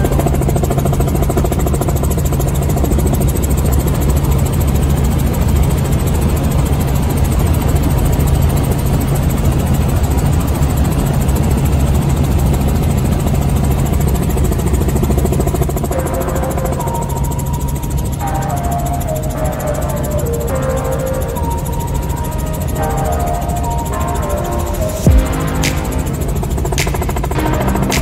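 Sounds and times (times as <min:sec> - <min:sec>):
helicopter engine and rotor drone: 0:00.0 - 0:28.0.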